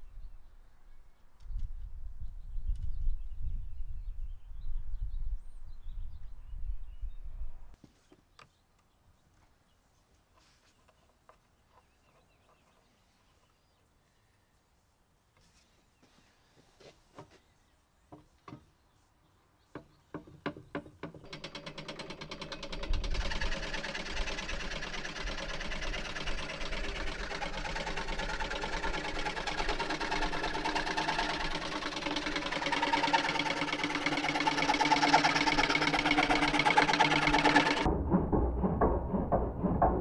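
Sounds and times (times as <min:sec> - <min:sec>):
treadle scroll saw clattering: 0:21.0 - 0:40.0
saw blade cutting wood: 0:21.2 - 0:40.0.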